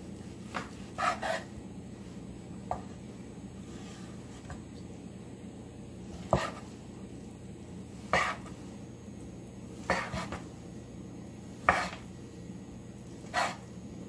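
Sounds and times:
steady low hum: 0.0 - 14.0
knife slicing meat on wooden board: 0.5 - 1.5, 6.2 - 6.7, 8.1 - 8.5, 9.8 - 10.4, 11.6 - 12.0, 13.2 - 13.6.

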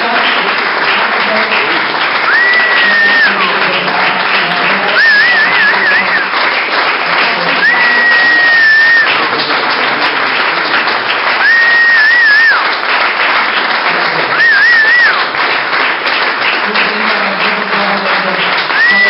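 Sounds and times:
audience applauding: 0.0 - 19.0
loud whistles of approval: 2.2 - 3.6, 4.8 - 6.4, 7.6 - 9.2, 11.4 - 12.8, 14.3 - 15.2, 18.7 - 19.0.

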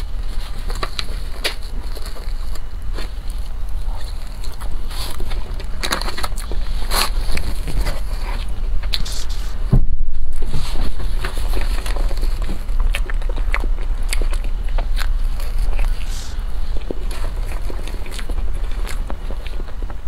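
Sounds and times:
cake being chewed: 0.0 - 9.6, 10.3 - 20.0
muffled thump: 9.7 - 10.8.

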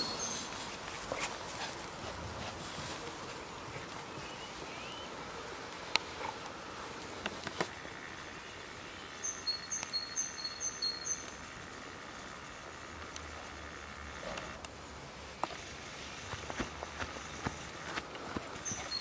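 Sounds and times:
songbird chirping: 0.0 - 0.6, 3.3 - 5.2, 8.3 - 11.5, 18.5 - 19.0.

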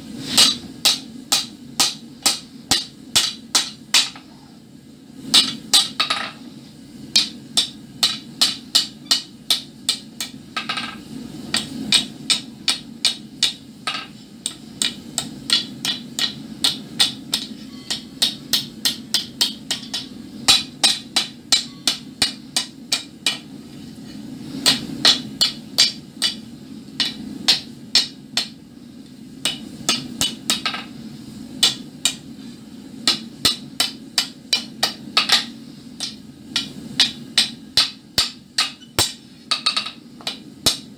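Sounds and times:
hammer ringing on anvil: 17.3 - 22.1.

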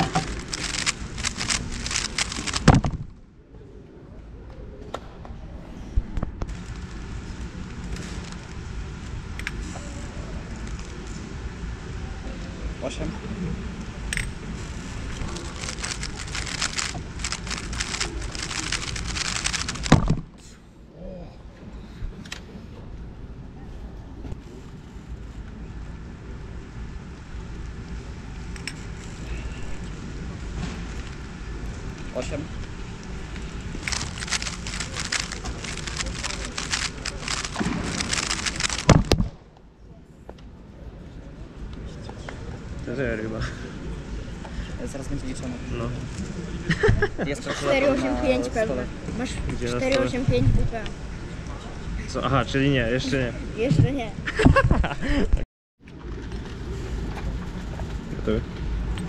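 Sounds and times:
puzzle cube clicking: 0.0 - 2.9, 15.3 - 20.2, 33.8 - 39.2
cube thumping down: 0.0 - 3.2, 15.5 - 20.4, 34.0 - 39.4
low hall noise: 0.0 - 47.2.

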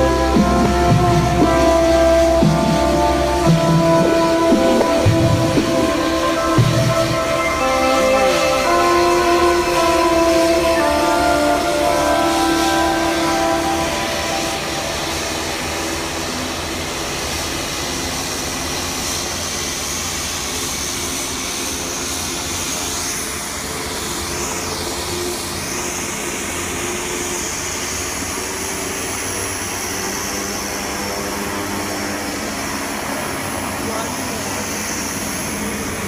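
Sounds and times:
turboprop aircraft engines running: 0.0 - 36.0.

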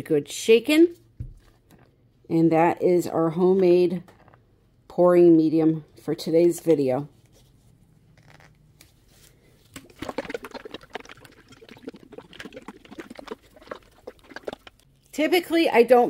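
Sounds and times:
liquid sloshing in shaken bottle: 9.6 - 15.1.

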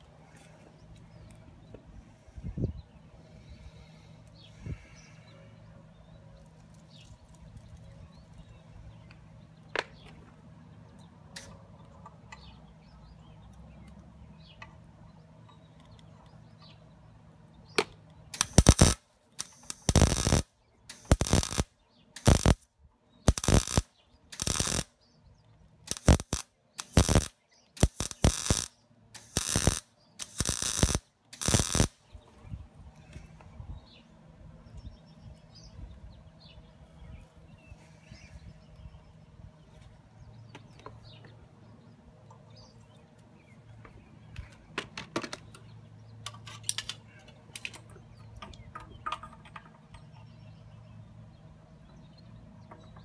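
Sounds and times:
welder arc crackling: 18.3 - 22.6, 23.3 - 24.9, 25.8 - 32.0.

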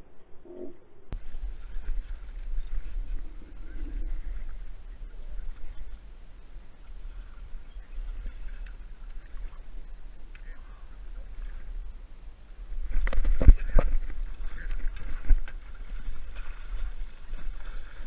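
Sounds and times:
wind rumble on microphone: 0.0 - 18.0
fish splashing and thrashing: 12.8 - 18.0.

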